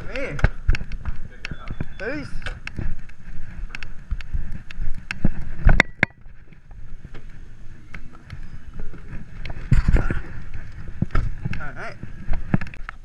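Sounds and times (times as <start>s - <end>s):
rustling: 0.0s - 13.0s
wind and handling rumble: 0.0s - 13.0s
short high beep: 1.5s - 2.3s.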